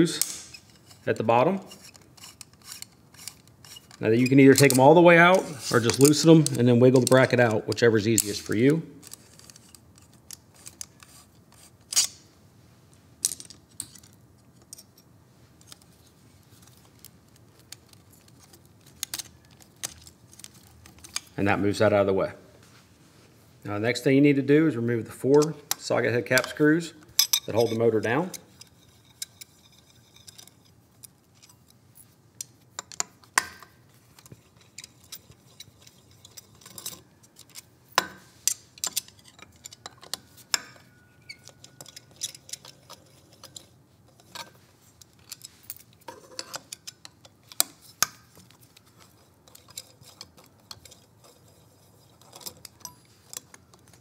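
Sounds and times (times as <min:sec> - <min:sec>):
light metallic clicks and clinks: 0:34.2 - 0:54.0.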